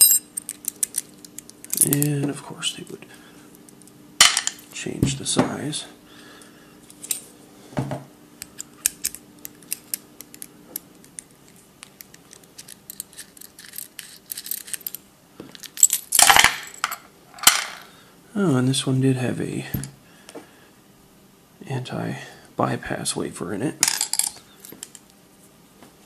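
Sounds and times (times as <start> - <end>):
metal parts clattering: 0.0 - 2.1, 12.3 - 17.9, 23.8 - 25.0
metal lock parts clinking: 0.0 - 2.2, 8.4 - 17.8.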